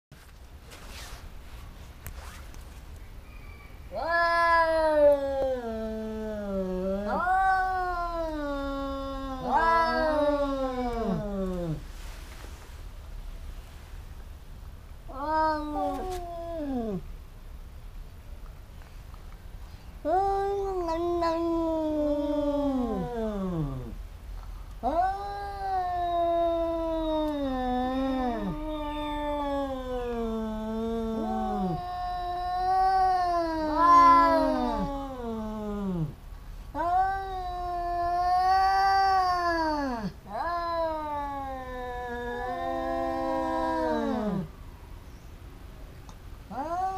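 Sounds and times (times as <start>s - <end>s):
cats yowling: 3.9s - 11.8s, 15.1s - 17.1s, 20.0s - 24.0s, 24.8s - 44.5s, 46.5s - 46.9s.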